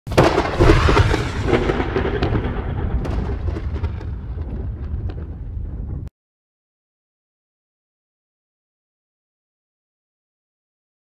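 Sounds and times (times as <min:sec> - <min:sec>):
thunderclap rolling into rumble: 0:00.1 - 0:06.1.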